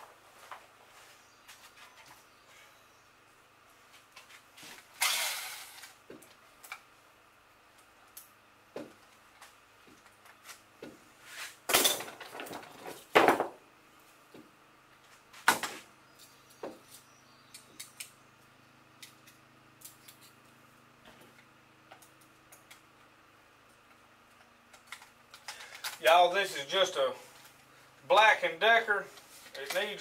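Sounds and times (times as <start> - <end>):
electric knife parts clattering: 4.7 - 6.8, 11.7 - 13.5, 24.7 - 26.4, 29.4 - 30.0.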